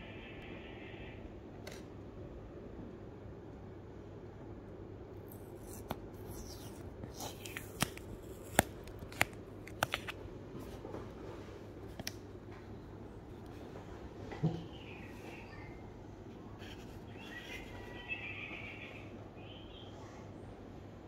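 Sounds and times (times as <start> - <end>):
tape peeling off cardboard: 5.3 - 10.1.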